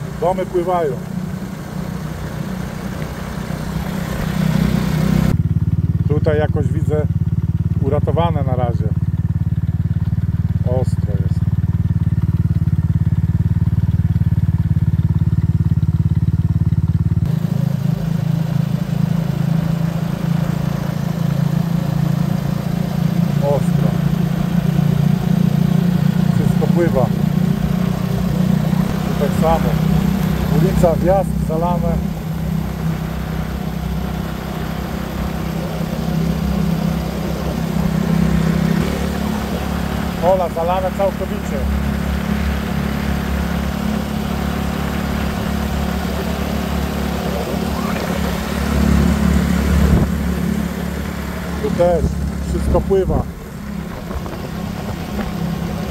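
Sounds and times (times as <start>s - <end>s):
engine pulsing: 0.0s - 55.9s
vehicle engine moving: 0.0s - 55.9s.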